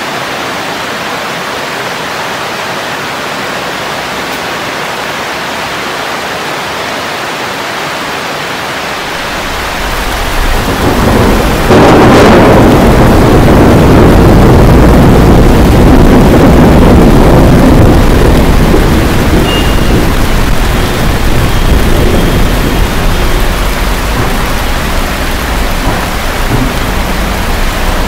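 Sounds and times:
heavy rain: 0.0s - 28.0s
thunder rumbling and clapping: 9.4s - 28.0s.

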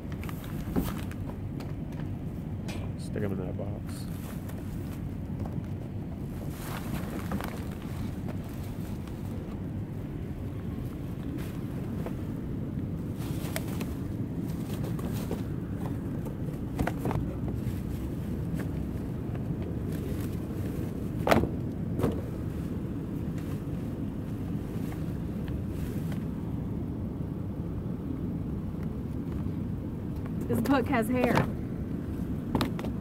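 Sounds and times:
steady low rumble: 0.0s - 33.0s
books handled in cardboard box: 0.1s - 1.5s, 4.0s - 9.6s, 13.0s - 26.2s.

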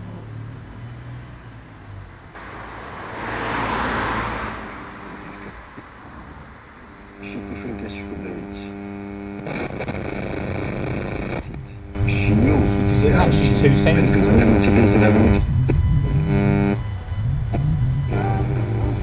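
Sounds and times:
buzzing hum between stations: 2.4s - 19.0s
radio static hiss: 4.5s - 19.0s.

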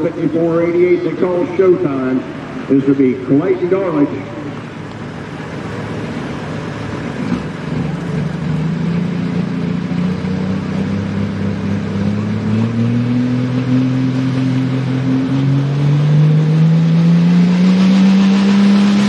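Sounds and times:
tractor diesel engine revving: 0.0s - 19.0s.

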